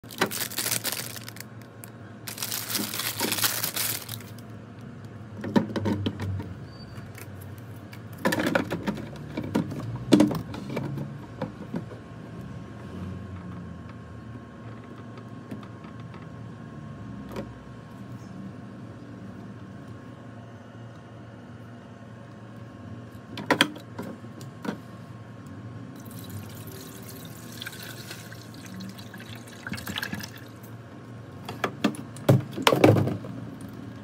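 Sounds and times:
plastic packaging crinkling: 0.0 - 4.5.

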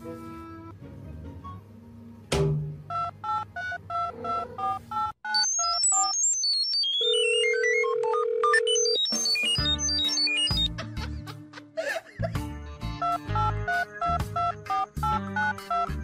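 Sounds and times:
phone keypad beeps: 5.0 - 10.7
electronic beeps stepping in pitch: 5.3 - 10.7.

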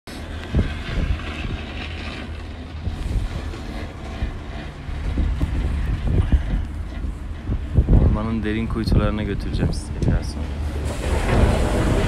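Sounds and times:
skis sliding on snow: 0.1 - 5.9
wind buffeting microphone: 0.1 - 12.0.

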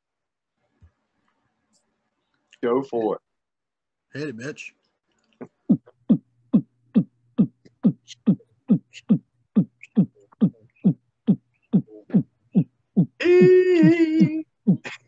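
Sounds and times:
deep kick drum beat: 5.7 - 10.6, 11.3 - 14.9.

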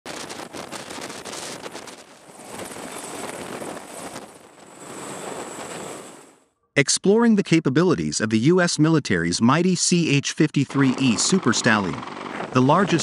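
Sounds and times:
helicopter rotor downwash on microphone: 0.1 - 6.2, 10.5 - 13.0
faint high whine: 0.8 - 6.6.

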